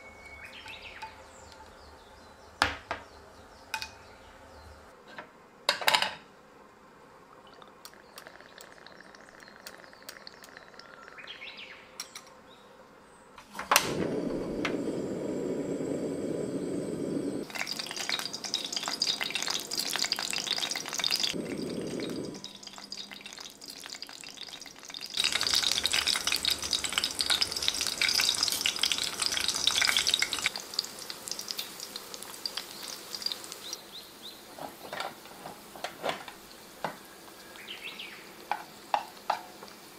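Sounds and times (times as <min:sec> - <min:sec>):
garlic sizzling in oil: 0:13.5 - 0:39.9
oil pouring into frying pan: 0:17.4 - 0:33.4.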